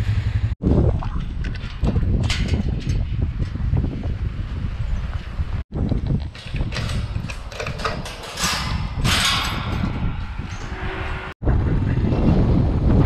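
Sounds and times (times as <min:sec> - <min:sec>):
wind rumble on microphone: 0:00.0 - 0:13.0
gate chain and latch rattling: 0:05.9 - 0:10.7.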